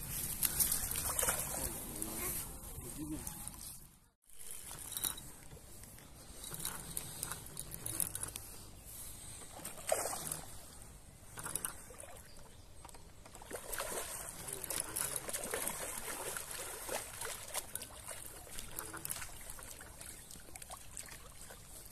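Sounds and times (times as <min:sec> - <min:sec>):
fish splashing in water: 0:13.3 - 0:21.8.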